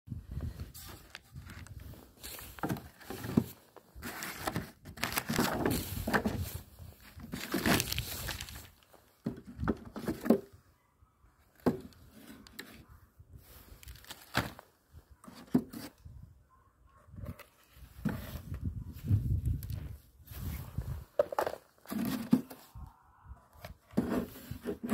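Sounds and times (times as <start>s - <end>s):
rustling: 0.6s - 9.0s.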